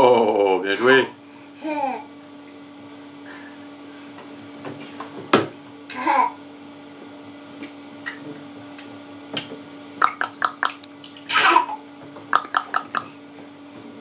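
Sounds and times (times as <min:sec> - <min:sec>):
baby splashing in bathtub: 0:10.0 - 0:13.2.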